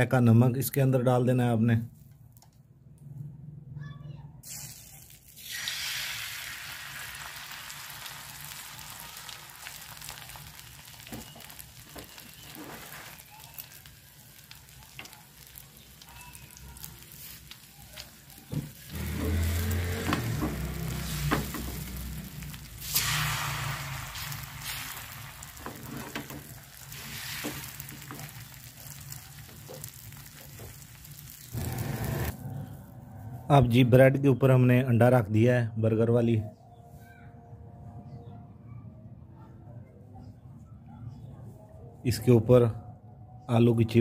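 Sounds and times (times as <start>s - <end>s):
eggs sizzling in hot oil: 4.5s - 32.4s.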